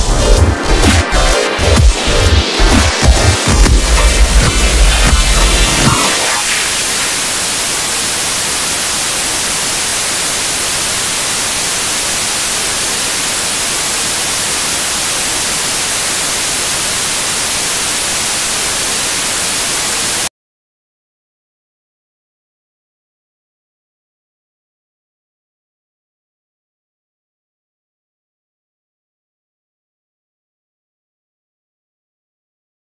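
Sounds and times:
loud static hiss: 0:00.0 - 0:20.3.

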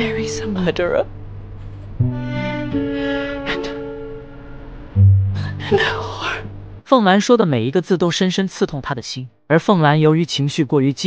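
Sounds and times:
music of sustained notes: 0:02.0 - 0:06.0.

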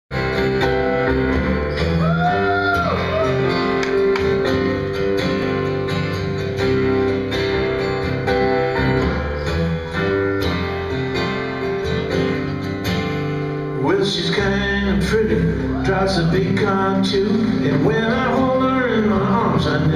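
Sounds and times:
strummed acoustic guitar: 0:00.1 - 0:19.9
electronic keyboard chords: 0:03.0 - 0:13.8.

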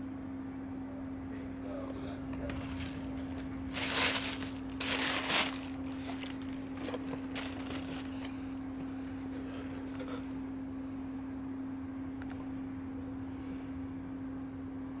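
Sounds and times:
steady low hum: 0:00.0 - 0:15.0
handling sounds: 0:02.4 - 0:08.9
tissue paper rustling: 0:02.5 - 0:08.7.

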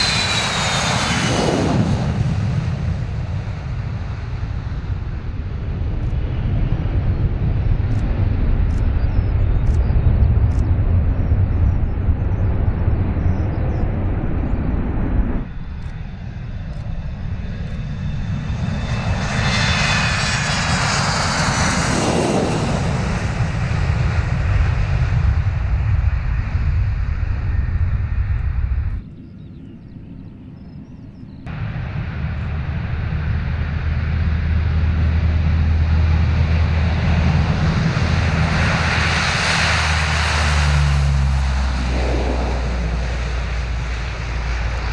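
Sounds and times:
jet aircraft taking off: 0:00.0 - 0:44.9
turboprop propeller drone: 0:00.0 - 0:44.9
jet whine falling in pitch: 0:39.6 - 0:44.9.

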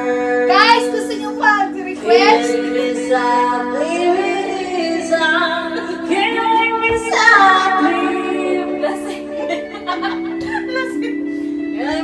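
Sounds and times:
child singing: 0:00.0 - 0:09.0
held accompaniment chords: 0:00.0 - 0:12.0.

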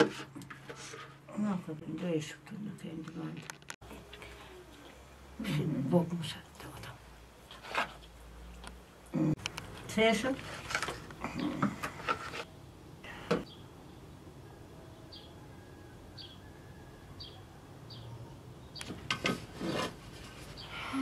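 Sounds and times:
food preparation rubbing and clatter: 0:00.0 - 0:01.4, 0:09.8 - 0:12.5, 0:19.0 - 0:20.7.

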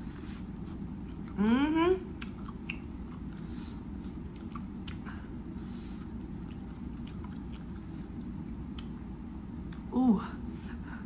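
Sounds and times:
low background hum: 0:00.0 - 0:11.0
chewing and mouth smacks: 0:00.6 - 0:01.4, 0:02.1 - 0:05.3, 0:05.9 - 0:09.9.

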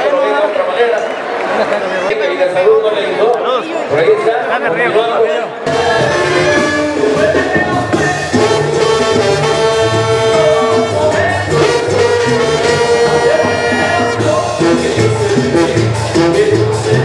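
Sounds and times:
brass band music: 0:05.6 - 0:17.0.

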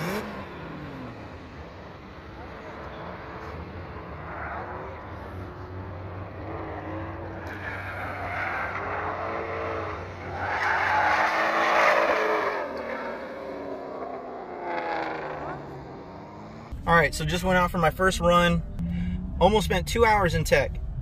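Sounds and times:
car engines revving: 0:00.0 - 0:21.0
tyres squealing: 0:06.6 - 0:13.2.

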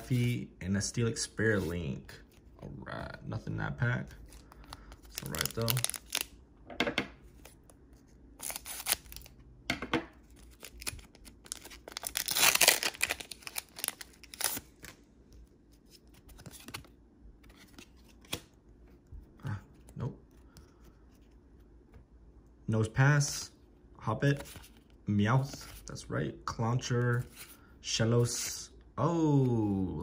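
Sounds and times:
cards rustling and clicking: 0:04.1 - 0:06.3, 0:07.2 - 0:09.4, 0:10.1 - 0:22.1
foil wrapper ripping: 0:05.1 - 0:06.2, 0:10.5 - 0:14.6
foil wrapper crinkling: 0:05.1 - 0:06.3, 0:10.4 - 0:14.9.

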